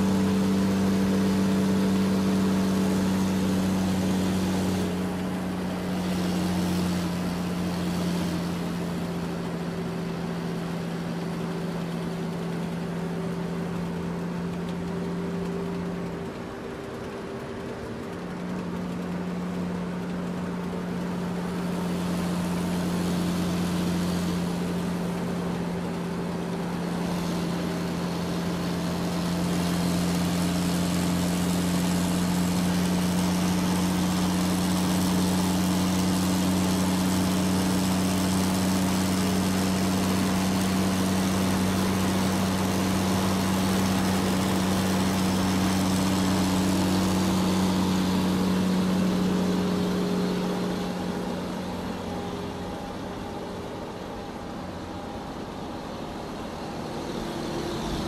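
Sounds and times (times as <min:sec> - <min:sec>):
model engine drone: 0:00.0 - 0:58.0.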